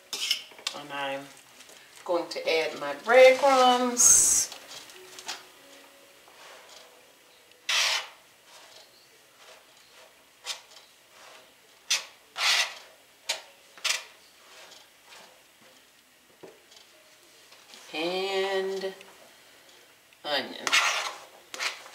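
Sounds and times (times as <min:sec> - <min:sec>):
fork scraping plastic mat: 0:00.1 - 0:00.5, 0:06.3 - 0:06.9, 0:07.7 - 0:15.4, 0:20.6 - 0:21.9.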